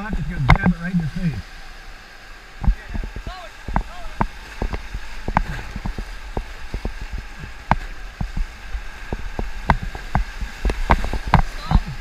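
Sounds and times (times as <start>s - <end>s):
paddles splashing water: 0.0s - 12.0s
waves slapping raft: 0.0s - 12.0s
whitewater rapids rushing: 0.0s - 12.0s.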